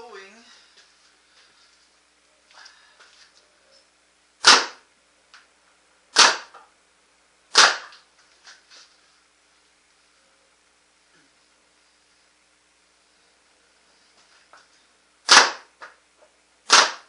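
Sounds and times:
paintball marker shots: 4.4 - 4.9, 6.1 - 6.6, 7.5 - 8.0, 15.2 - 16.0, 16.6 - 17.0.

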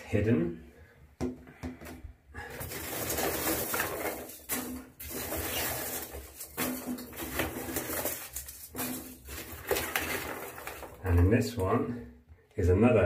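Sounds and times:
packing chips rustling: 2.4 - 11.4.

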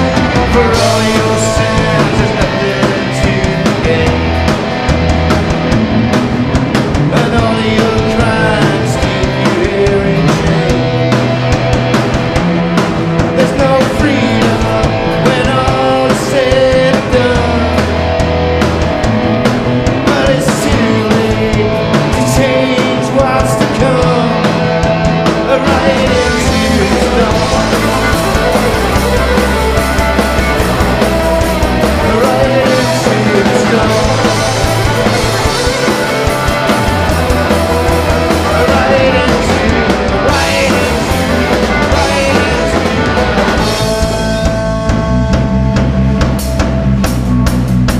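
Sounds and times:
rock band playing: 0.0 - 47.9
fiddle melody: 24.6 - 46.4.

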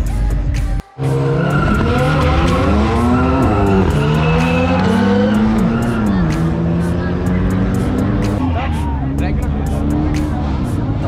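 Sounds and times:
car engine accelerating: 1.0 - 11.0.

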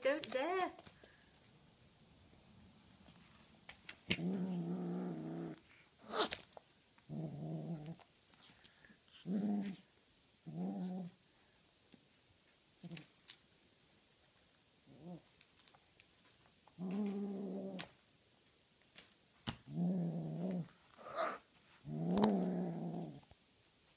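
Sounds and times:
kitten growling: 4.1 - 6.4, 7.1 - 8.0, 9.1 - 11.2, 14.9 - 15.3, 16.8 - 17.9, 19.6 - 23.3.

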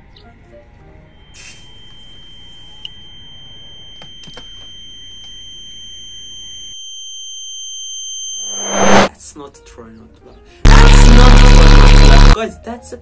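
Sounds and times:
high-pitched ringing tone: 1.0 - 9.1, 10.7 - 12.4
burst of noise: 8.5 - 9.1, 10.7 - 12.4.

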